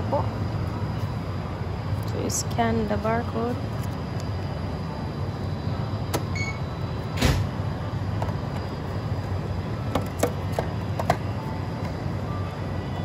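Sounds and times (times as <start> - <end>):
low machine hum: 0.0 - 13.0
short electronic beep: 6.4 - 6.7
sliding door whoosh: 7.2 - 7.5.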